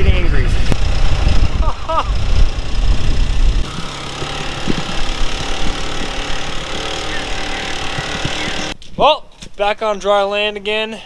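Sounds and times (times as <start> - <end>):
atv engine droning: 0.0 - 8.8.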